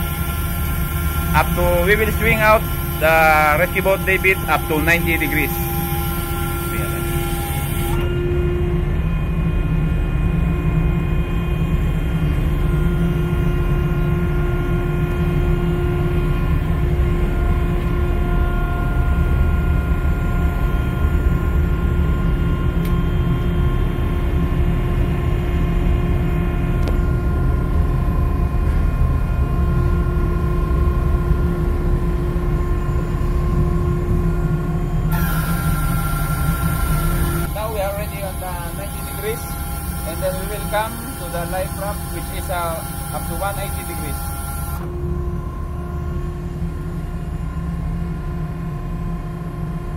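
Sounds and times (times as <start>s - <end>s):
hydraulic power pack running: 0.0s - 24.2s, 30.2s - 46.0s.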